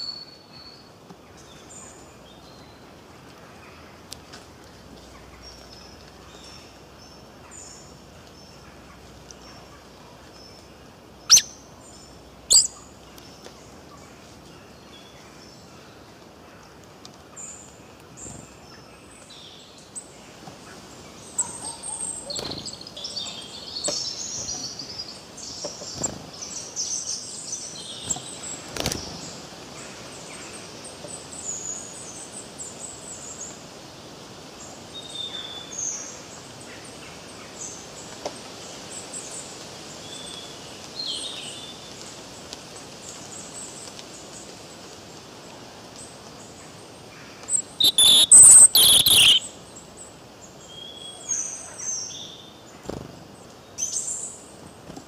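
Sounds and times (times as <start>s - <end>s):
steady outdoor hiss: 0.0s - 55.0s
birds chirping: 11.2s - 12.8s, 47.5s - 49.9s.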